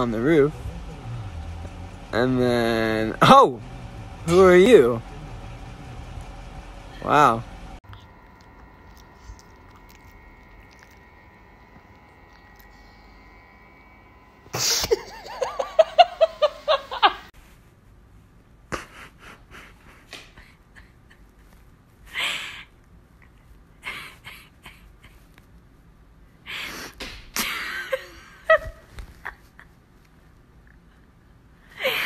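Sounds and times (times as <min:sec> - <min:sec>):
person laughing high-pitched: 0:14.5 - 0:17.3.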